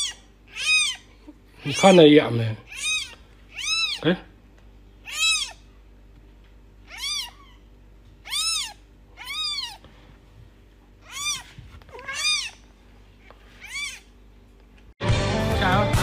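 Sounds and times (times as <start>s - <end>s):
kitten mewing: 0.0s - 2.0s, 2.6s - 4.3s, 5.0s - 5.7s, 6.8s - 9.8s, 11.0s - 12.6s, 13.6s - 14.2s.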